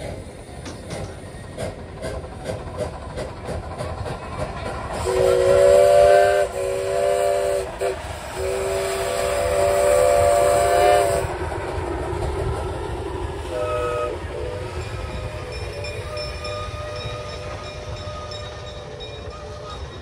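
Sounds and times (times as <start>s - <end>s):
train running rumble: 0.0s - 20.0s
steam whistle blasts: 5.0s - 11.3s, 13.5s - 20.0s.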